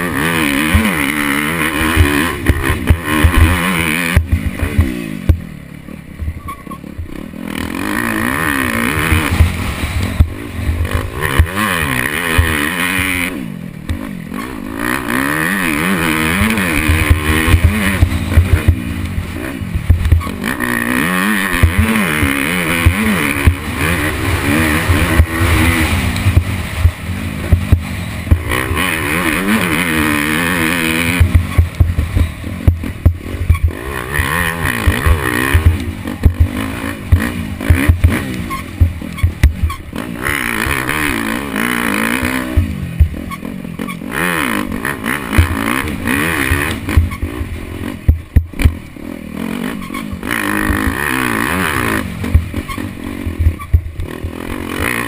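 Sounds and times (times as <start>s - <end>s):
dirt bike engine revving: 0.0s - 55.0s
sharp knocks and clatter: 16.1s - 40.0s, 45.2s - 47.3s.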